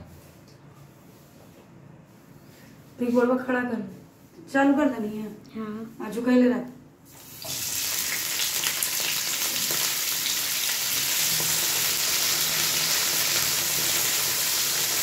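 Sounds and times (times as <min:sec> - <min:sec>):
food sizzling in hot oil: 0:07.2 - 0:15.0.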